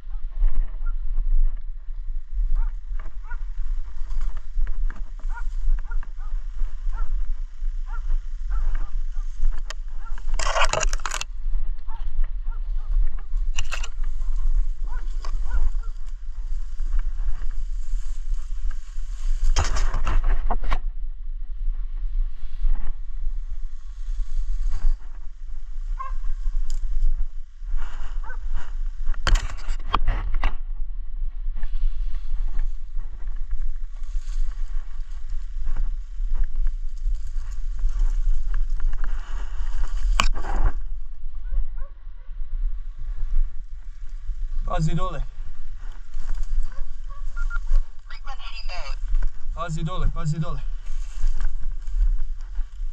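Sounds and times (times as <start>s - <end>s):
wind rumble on microphone: 0.0s - 52.9s
rustling handling noise: 2.8s - 11.6s.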